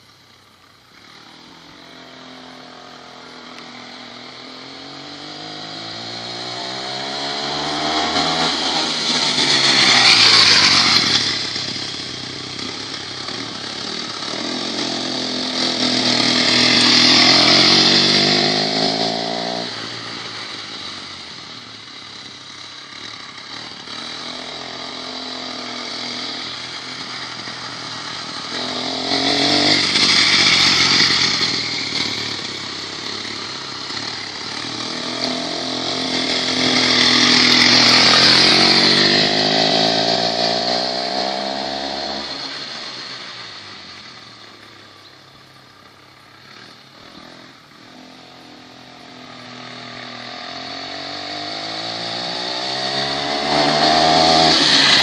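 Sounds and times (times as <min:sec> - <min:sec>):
moped engine passing by: 0:00.0 - 0:55.0.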